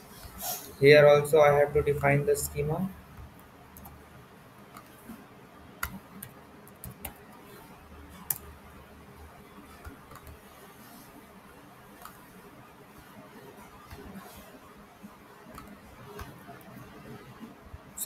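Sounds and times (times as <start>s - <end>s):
computer mouse clicks: 3.1s - 4.0s, 4.7s - 5.2s, 5.8s - 8.6s, 9.6s - 17.5s
keyboard keystrokes: 5.8s - 7.2s.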